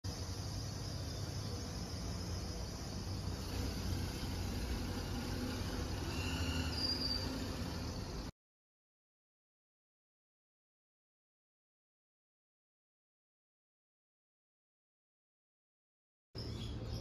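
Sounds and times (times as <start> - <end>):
insects chirring: 0.1 - 8.3.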